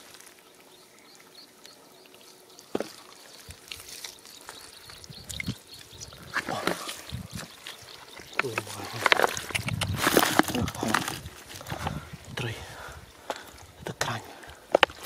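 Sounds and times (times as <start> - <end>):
water dripping: 2.6 - 8.6
mud squelching: 2.6 - 15.0
water splashing: 4.9 - 10.6.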